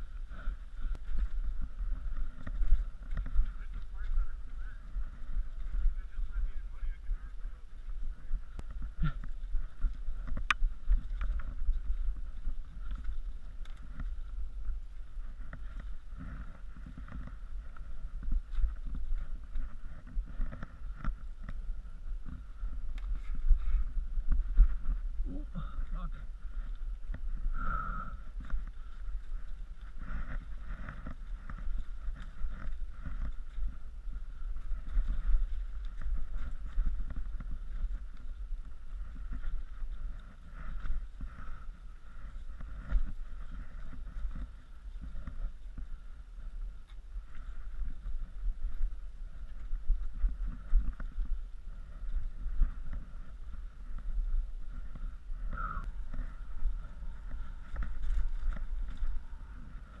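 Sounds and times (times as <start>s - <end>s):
wind and trail vibration rumble: 0.0s - 60.0s.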